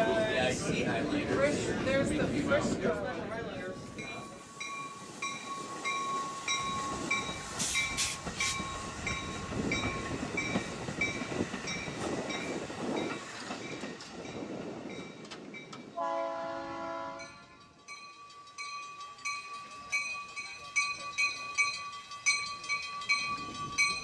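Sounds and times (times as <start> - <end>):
train wheels rumbling on rails: 0.0 - 24.0
multi-note train horn: 16.0 - 17.5.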